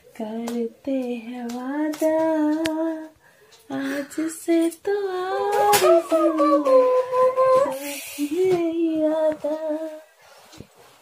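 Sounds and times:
person humming a slow tune: 5.1s - 10.0s.

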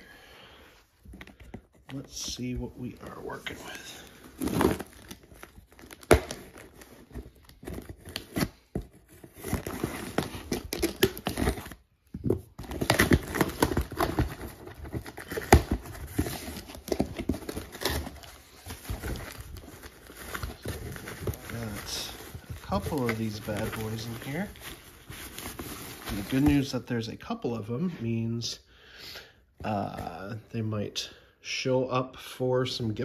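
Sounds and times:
bubble wrap rustling: 1.4s - 11.9s, 12.5s - 26.8s.

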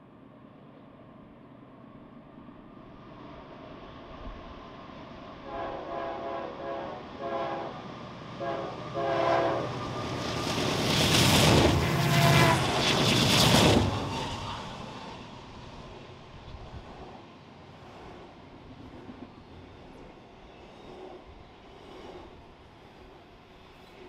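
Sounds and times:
locomotive horn blasts: 5.4s - 7.8s, 8.4s - 9.8s, 12.0s - 12.7s
wheel and rail noise: 7.8s - 24.0s.

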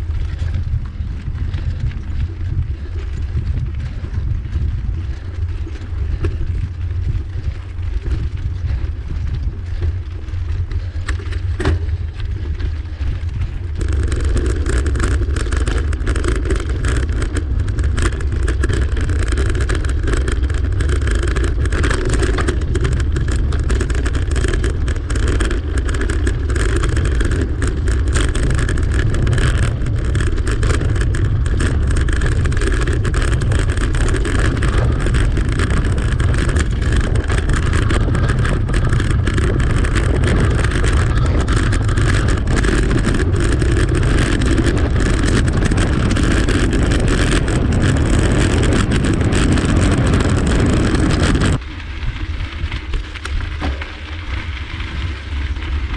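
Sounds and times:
bicycle rattling over cobblestones: 0.0s - 55.9s
wind on microphone: 0.0s - 55.9s.

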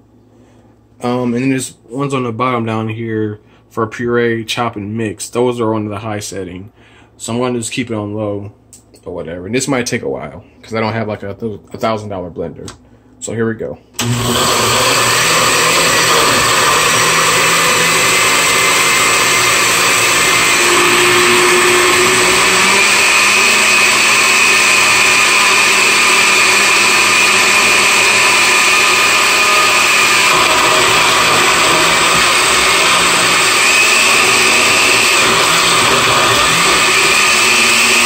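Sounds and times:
blender motor whirring: 14.0s - 38.0s.

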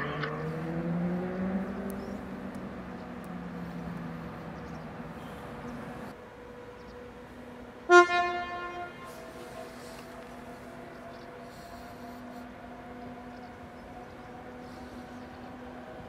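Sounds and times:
electric train hum: 0.0s - 16.0s
train horn blast: 7.8s - 16.0s.

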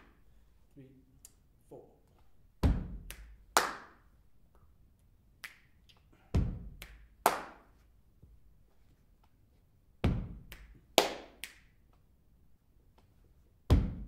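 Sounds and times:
low percussion thump: 2.6s - 3.0s, 10.0s - 10.4s, 13.7s - 14.0s
sharp clap-like hits: 2.6s - 4.1s, 5.4s - 7.8s, 10.0s - 11.9s.

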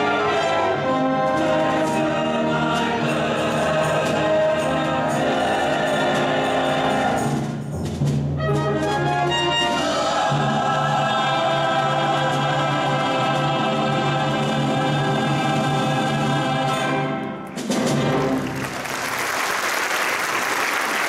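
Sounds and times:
choir and orchestra chord: 9.6s - 17.3s
audience applause: 18.1s - 21.0s.

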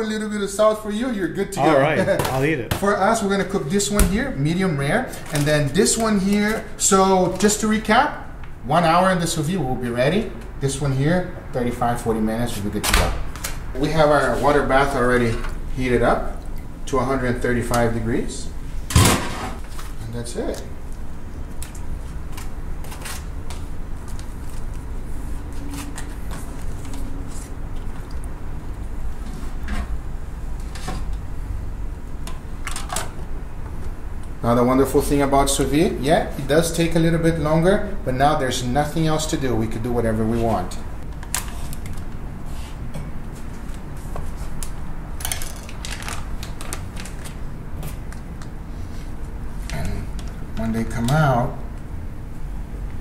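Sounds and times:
plastic bags rustling: 45.2s - 48.1s
plastic crinkling: 45.3s - 48.2s.

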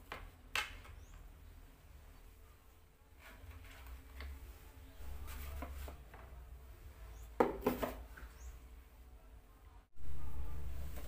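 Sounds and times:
plastic tube knocking: 7.4s - 8.0s
plastic containers rustling and tapping: 7.4s - 8.4s.

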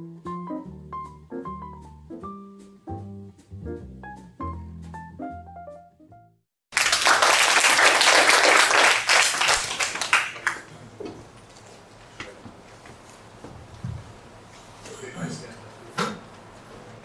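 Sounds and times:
jazz piano and vibraphone tune: 0.0s - 6.0s
audience applauding: 6.7s - 10.7s.

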